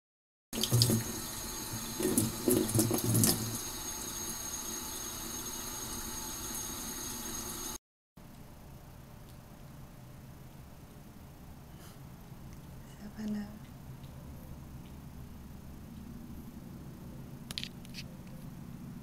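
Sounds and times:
water splashes and bumps: 0.6 - 1.2, 1.8 - 3.6
tap running into metal sink: 0.6 - 3.6.

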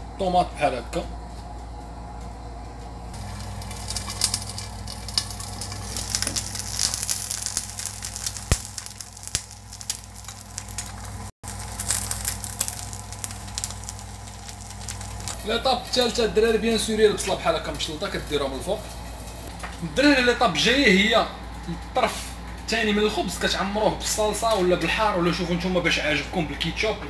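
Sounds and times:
eggs sizzling in a pan: 3.2 - 15.5.

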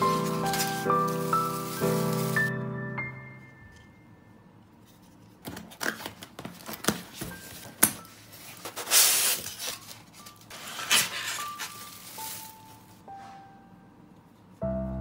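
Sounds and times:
plastic wrapper crinkling: 0.0 - 2.5, 8.4 - 12.9
styrofoam scraping in box: 0.0 - 2.5, 8.3 - 12.7
scissors snipping packing tape: 5.5 - 8.0.

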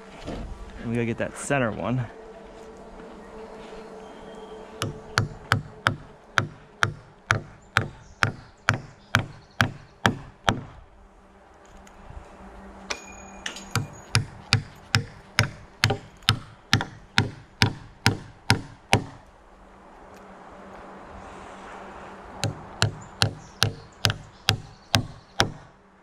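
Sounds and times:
light metallic clinks: 12.9 - 14.2
hammer driving nails into wood: 13.8 - 19.2.

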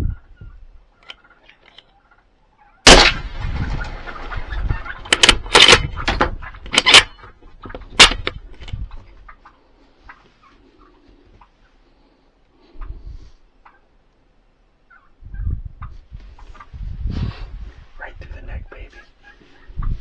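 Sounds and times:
rifle shot: 2.8 - 4.3, 5.0 - 7.2, 8.0 - 8.4.

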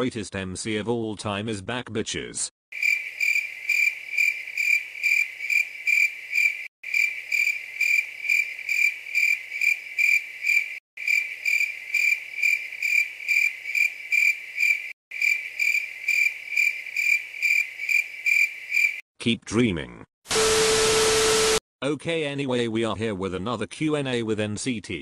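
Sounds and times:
crickets chirping: 2.7 - 19.0.

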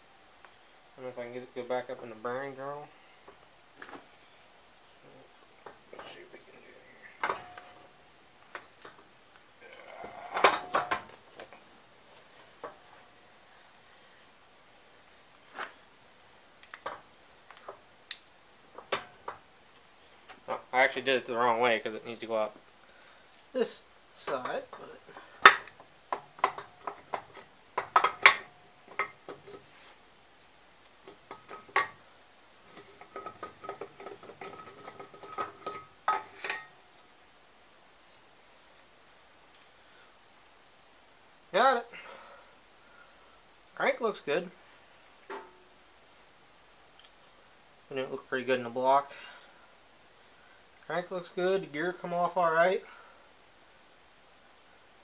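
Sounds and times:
metal clinks and knocks: 7.2 - 8.0, 10.2 - 11.6, 24.3 - 29.6, 31.0 - 32.0, 32.7 - 36.8.

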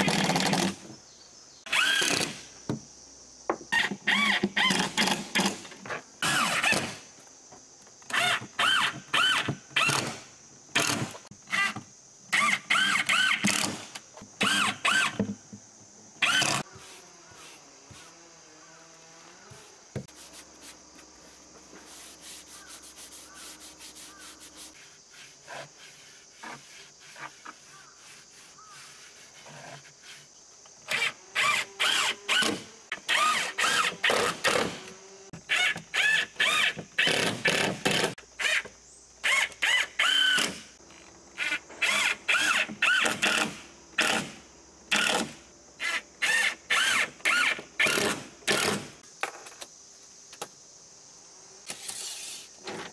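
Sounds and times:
power driver driving screws: 1.7 - 2.4, 16.2 - 16.6.

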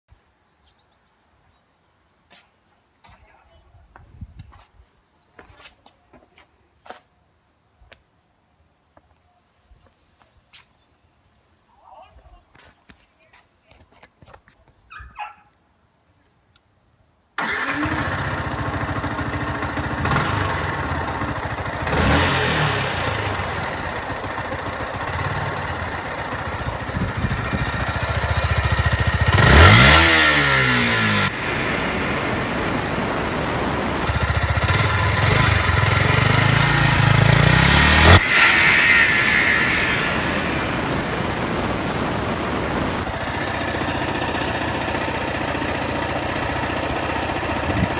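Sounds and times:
motorcycle engine revving: 17.4 - 47.9
motorcycle engine starting and idling: 17.4 - 47.9.

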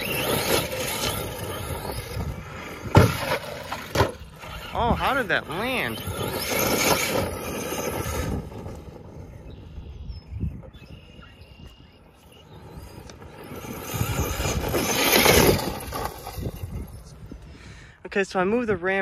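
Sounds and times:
rc truck motor whine: 0.0 - 17.5
tyre noise: 12.3 - 17.4.

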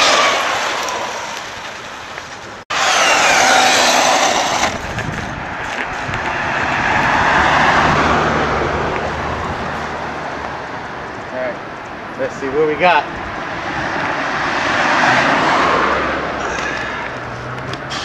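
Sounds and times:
electric motor whine: 2.7 - 5.3
rushing noise with low hum: 4.4 - 11.3.

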